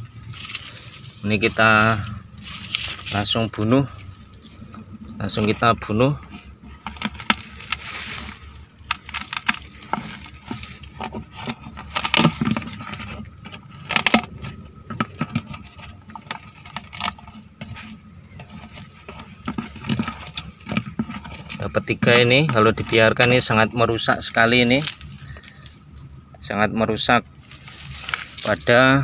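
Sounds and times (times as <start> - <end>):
beetles crushed against plastic bucket: 0.3 - 29.0.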